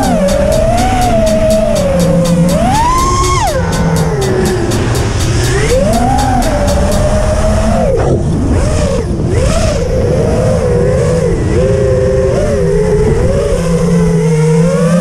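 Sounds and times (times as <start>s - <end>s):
low rushing noise: 0.0s - 11.4s
quadcopter motors whining: 0.0s - 15.0s.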